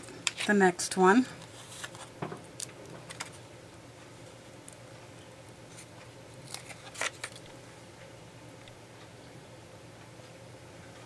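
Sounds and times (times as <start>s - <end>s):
faint steady hum: 0.0s - 11.0s
paper rustles: 1.4s - 2.1s, 5.7s - 7.5s.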